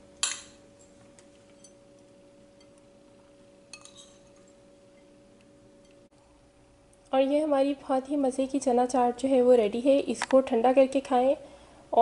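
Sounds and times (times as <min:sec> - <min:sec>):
faint steady hum: 0:00.0 - 0:12.0
ceramic bowl clinking on glass: 0:03.7 - 0:04.6.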